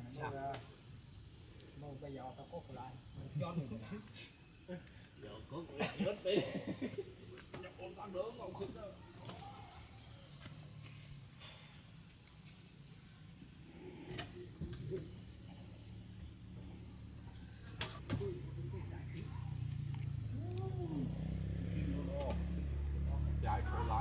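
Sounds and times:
insects droning: 0.0 - 24.0
bird chirps: 13.4 - 15.4.

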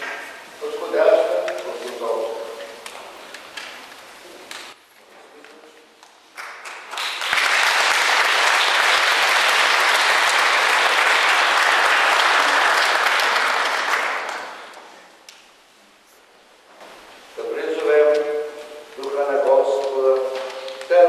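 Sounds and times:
congregation applauding: 6.3 - 14.9.

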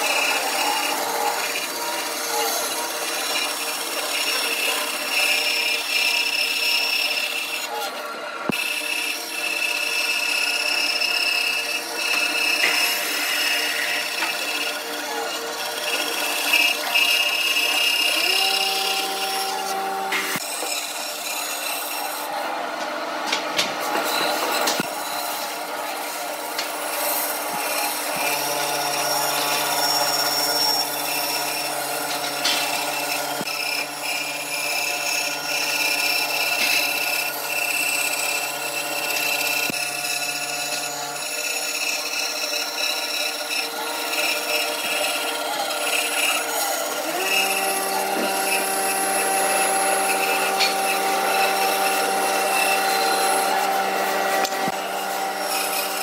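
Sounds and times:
band saw cutting wood: 0.0 - 56.0.

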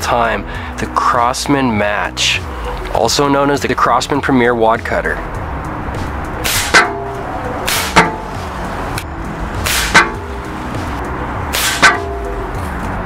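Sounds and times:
air rifle shots: 6.4 - 7.0, 7.7 - 8.2, 9.6 - 10.2, 11.5 - 12.1.

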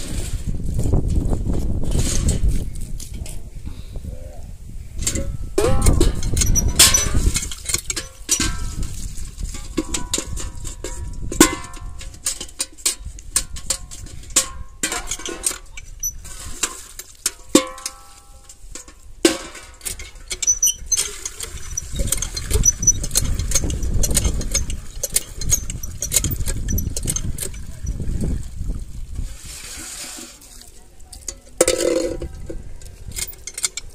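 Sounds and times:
steel bucket clanking: 0.0 - 3.4, 5.0 - 33.9
hand pump being worked: 5.0 - 33.9
water gushing into bucket: 20.4 - 30.8.

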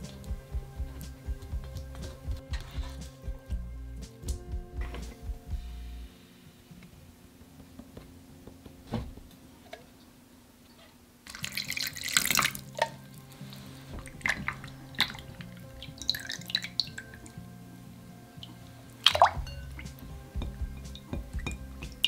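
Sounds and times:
soft background music: 0.0 - 9.3, 11.3 - 22.0
water pouring: 11.3 - 17.4
spoon clinking on glass bowl: 19.3 - 22.0.

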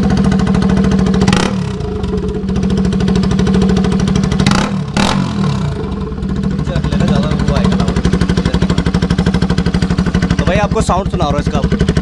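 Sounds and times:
loud motorcycle engine idling: 0.0 - 12.0.

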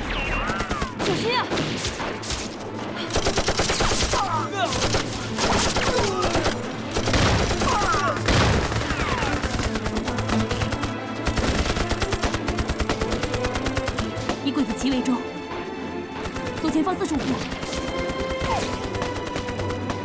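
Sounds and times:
machine-gun fire: 3.1 - 14.3
rifle shots: 3.1 - 14.3.

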